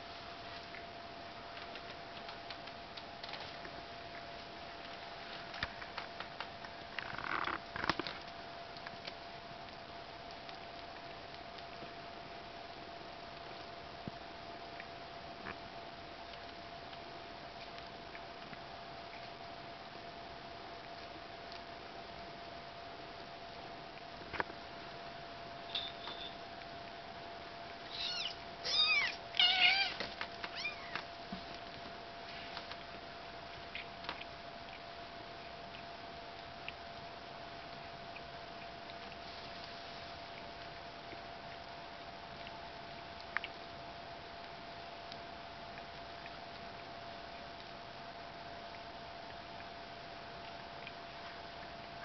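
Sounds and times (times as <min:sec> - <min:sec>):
cat licking and grooming: 0:00.0 - 0:52.0
faint steady hum: 0:00.0 - 0:52.0
kitten mewing: 0:27.9 - 0:31.0.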